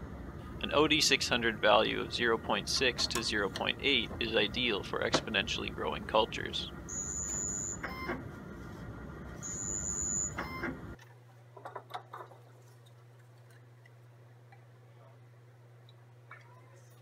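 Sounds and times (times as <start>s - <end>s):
machine mechanical whirr: 0.0s - 11.0s
low room hum: 0.0s - 17.0s
high electronic tones: 6.9s - 8.2s, 9.4s - 10.8s.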